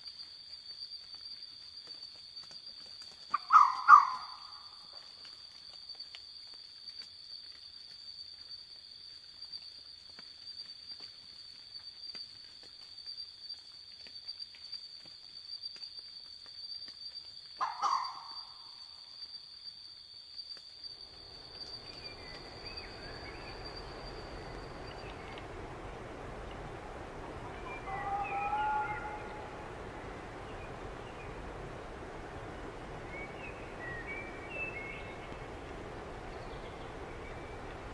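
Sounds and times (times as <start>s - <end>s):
high insect trill: 0.0s - 37.9s
fox bark: 3.4s - 4.4s, 17.6s - 18.4s
steady noise: 21.0s - 37.9s.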